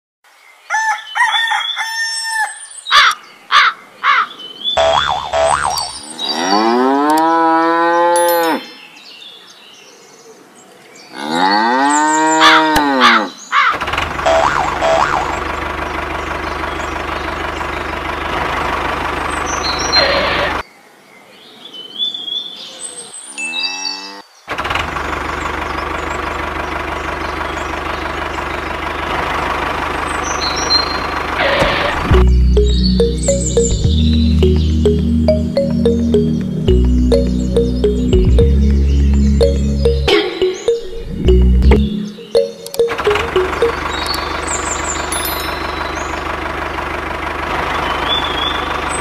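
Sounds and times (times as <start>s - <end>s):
cow mooing: 6.3s - 8.6s
steady engine running: 13.8s - 20.0s, 43.2s - 49.0s.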